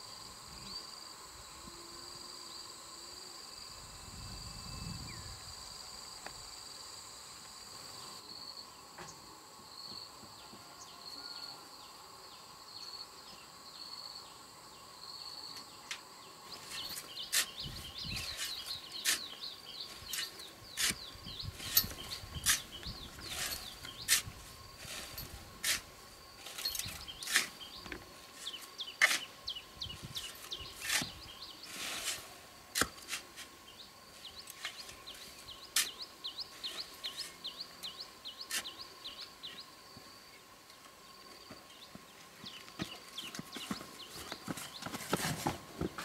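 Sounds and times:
shovel scraping sand: 0:16.6 - 0:29.4, 0:30.0 - 0:33.6, 0:34.4 - 0:37.4, 0:38.4 - 0:38.8.

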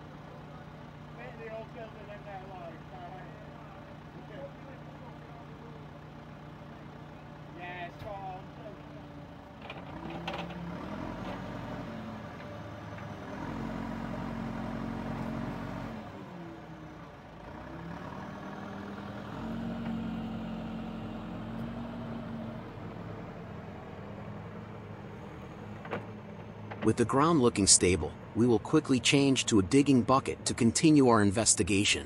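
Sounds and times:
backhoe diesel engine running: 0:00.0 - 0:32.0.

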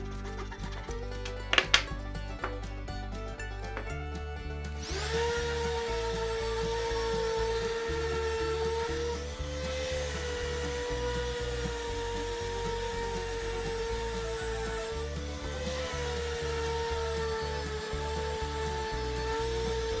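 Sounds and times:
orbital sander whining: 0:03.7 - 0:20.0
sandpaper rasping on wood: 0:04.8 - 0:20.0.

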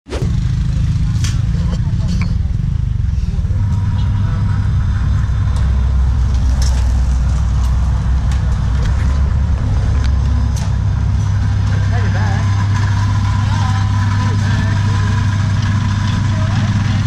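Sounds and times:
low mechanical hum: 0:00.1 - 0:17.0
footsteps on gravel: 0:06.1 - 0:11.3.

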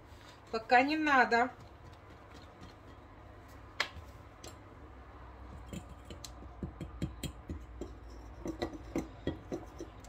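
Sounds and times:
kitchen utensil clicks and knocks: 0:05.5 - 0:10.0.

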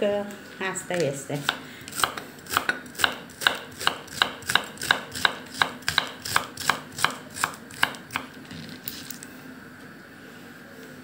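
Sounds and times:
knife slicing cabbage on wooden board: 0:01.4 - 0:08.8.

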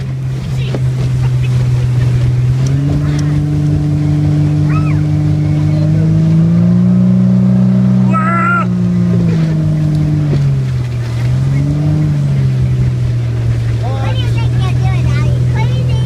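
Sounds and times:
motorboat engine running: 0:00.0 - 0:16.0
water and wind noise: 0:00.0 - 0:16.0
high voice crying out: 0:08.1 - 0:08.8.

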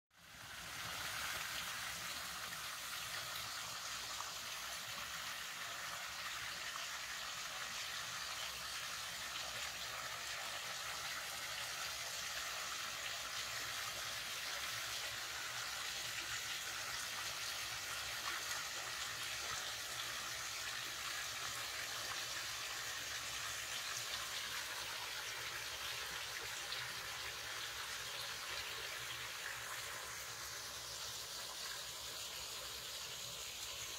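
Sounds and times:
creek water flowing: 0:00.1 - 0:33.9.

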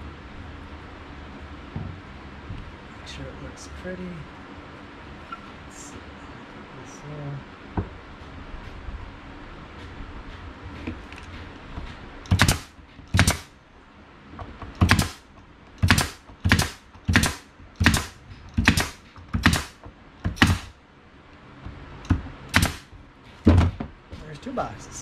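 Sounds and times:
pneumatic nail gun firing: 0:12.3 - 0:13.5, 0:14.8 - 0:15.2, 0:15.8 - 0:20.8, 0:22.5 - 0:22.9.

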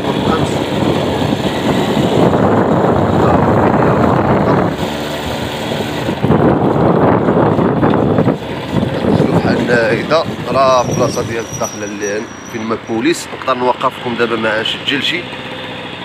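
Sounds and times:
wind buffeting microphone: 0:00.0 - 0:11.9
motorbike engine hum: 0:00.0 - 0:16.0.

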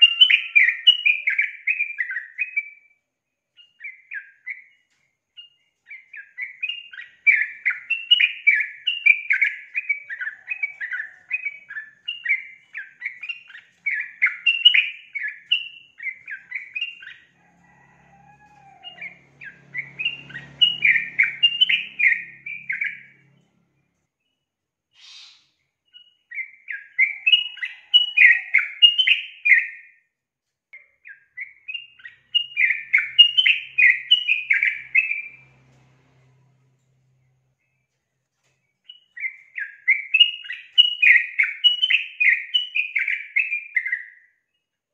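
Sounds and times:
bird chattering chirps: 0:25.0 - 0:29.6.

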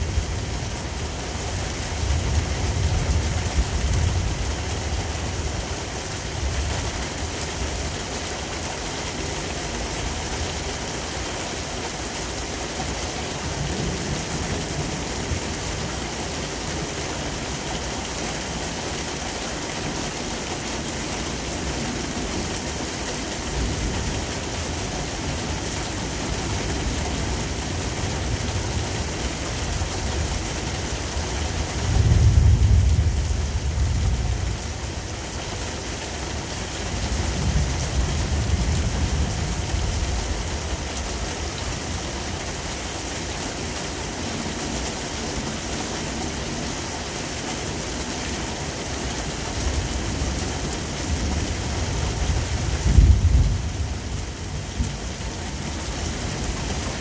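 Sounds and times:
heavy rain: 0:00.0 - 0:57.0
thunder rumbling: 0:31.9 - 0:34.7, 0:52.2 - 0:55.0.

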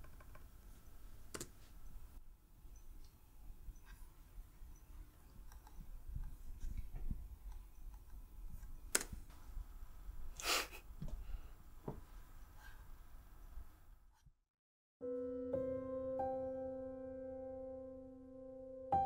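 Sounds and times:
sharp clicks: 0:07.5 - 0:09.2.

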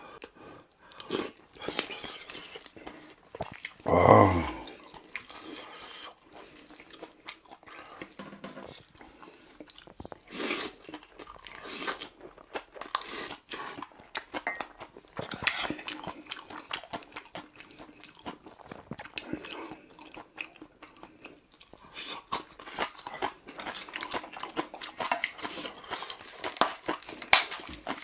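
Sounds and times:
man chewing and smacking: 0:00.1 - 0:03.9, 0:04.5 - 0:28.0.

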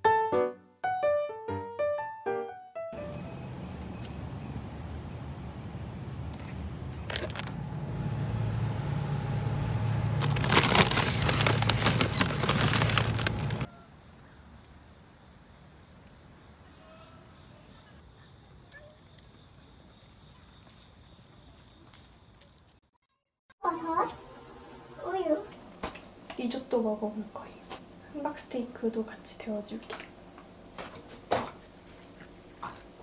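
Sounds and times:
low store hum: 0:03.0 - 0:13.7
crackling handling noise: 0:06.3 - 0:09.0, 0:09.6 - 0:13.7
insects trilling: 0:10.1 - 0:22.7.

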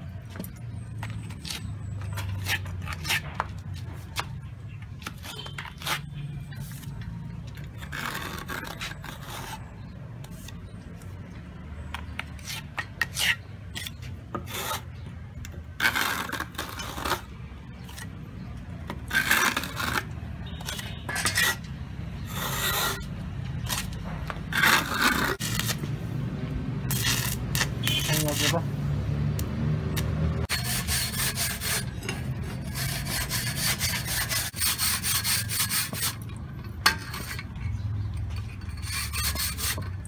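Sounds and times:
trowel scraping mortar: 0:01.2 - 0:04.4, 0:05.0 - 0:10.8, 0:12.2 - 0:15.0, 0:15.8 - 0:18.2, 0:18.9 - 0:25.9, 0:26.9 - 0:28.7, 0:30.4 - 0:37.8, 0:38.4 - 0:40.0.

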